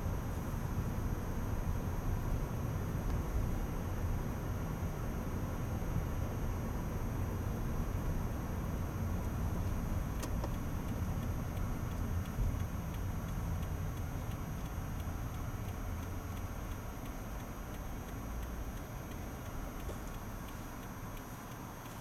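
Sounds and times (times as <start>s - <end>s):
car engine rumble: 0.0s - 22.0s
faint regular ticking: 9.5s - 22.0s.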